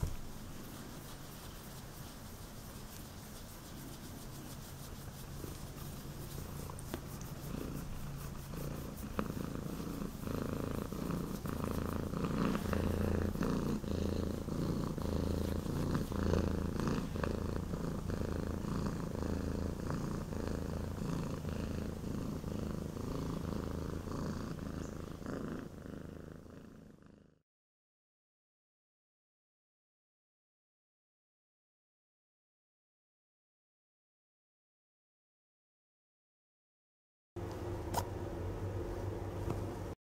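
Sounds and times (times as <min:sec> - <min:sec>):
cat purring: 0:00.0 - 0:27.4.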